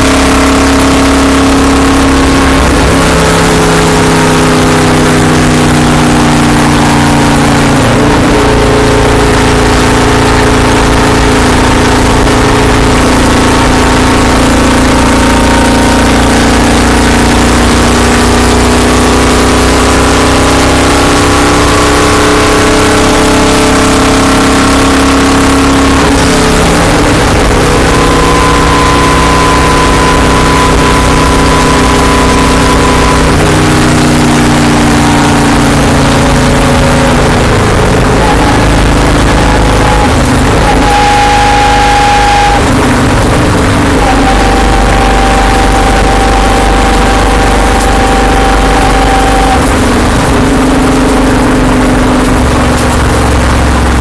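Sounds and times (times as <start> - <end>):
racing car engine running hard: 0.0 - 54.0.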